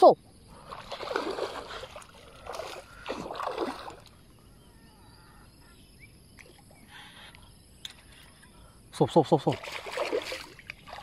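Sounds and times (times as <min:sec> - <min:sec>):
faint water sounds: 0:00.0 - 0:11.0
water splashing: 0:00.5 - 0:04.2, 0:09.3 - 0:11.0.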